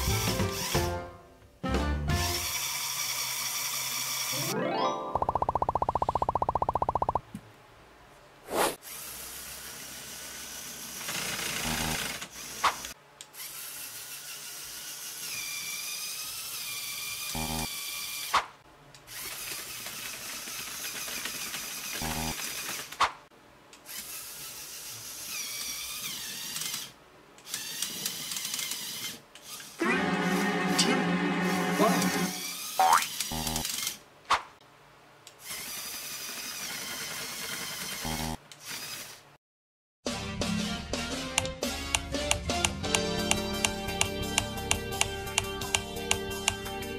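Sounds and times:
small electric motor whining: 2.4 - 4.4, 8.8 - 18.3, 19.1 - 22.7, 23.8 - 29.9, 31.4 - 34.0, 35.4 - 39.2
plastic gears whirring: 8.5 - 23.1, 23.8 - 29.8, 32.4 - 34.0, 35.3 - 39.2.

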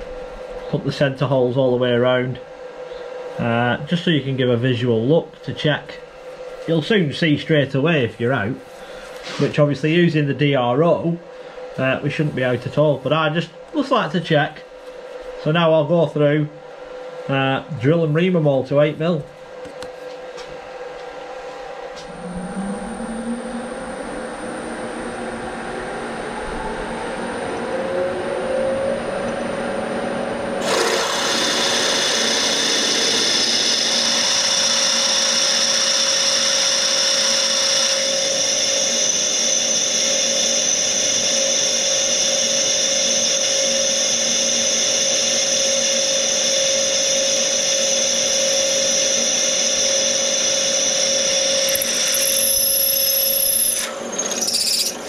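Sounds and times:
milling machine spindle whine: 21.3 - 55.0
drill cutting into metal: 30.6 - 55.0.

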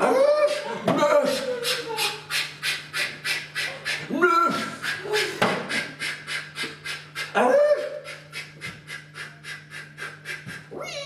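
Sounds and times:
man whining: 0.0 - 2.2
man panting: 0.2 - 10.8.

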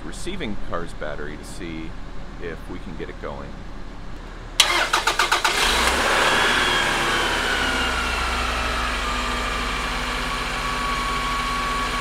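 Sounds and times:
engine high whine: 0.0 - 12.0
car engine cranking and starting: 4.6 - 12.0.

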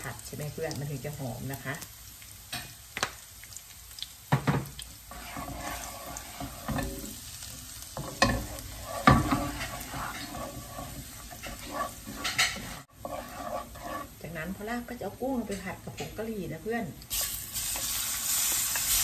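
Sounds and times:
food sizzling in frying pan: 0.0 - 19.0
wooden spoon scraping pan: 5.1 - 14.7.

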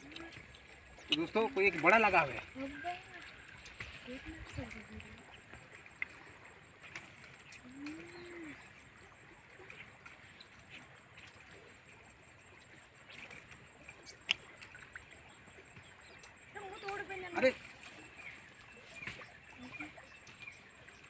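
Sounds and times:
faint outdoor background: 0.0 - 21.0
low cooing bird call: 7.6 - 8.7.

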